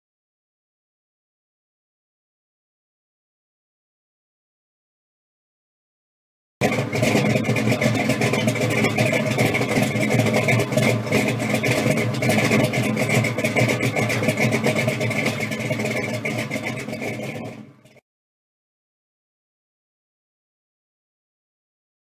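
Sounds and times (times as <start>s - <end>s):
car engine running: 6.6s - 18.0s.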